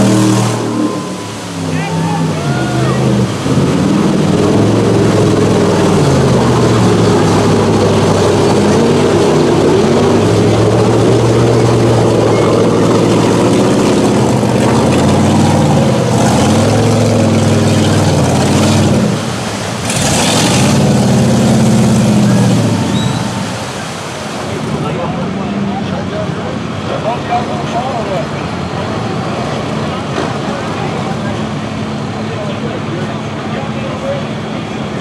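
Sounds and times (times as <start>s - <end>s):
engine revving hard: 0.0s - 24.0s
tires churning through mud: 0.0s - 35.0s.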